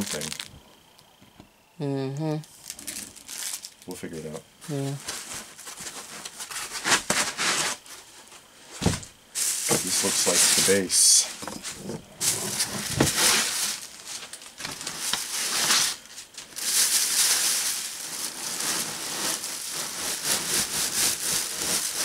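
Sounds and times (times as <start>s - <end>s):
packing material rustling: 0.0s - 0.6s, 2.5s - 4.0s, 8.8s - 11.2s, 12.2s - 22.0s.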